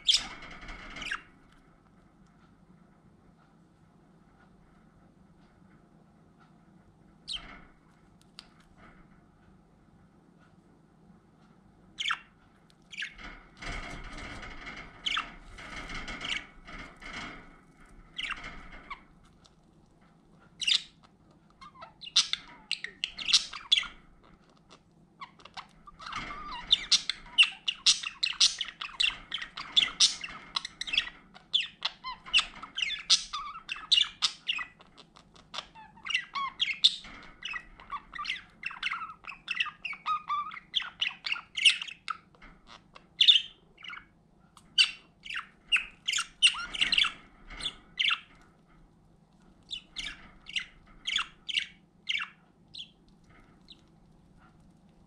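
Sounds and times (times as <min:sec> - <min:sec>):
budgerigars chattering: 0:00.0 - 0:01.2, 0:21.6 - 0:24.0, 0:25.2 - 0:42.3, 0:43.0 - 0:48.3, 0:49.7 - 0:53.0.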